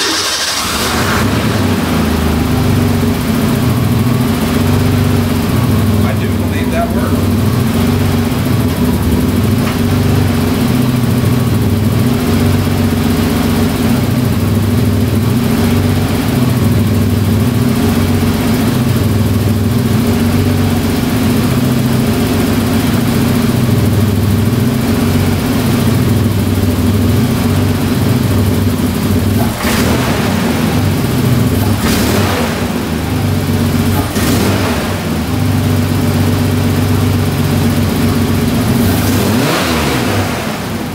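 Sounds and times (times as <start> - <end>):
brief hissing: 0.0 - 1.2
car engine idling: 0.0 - 40.9.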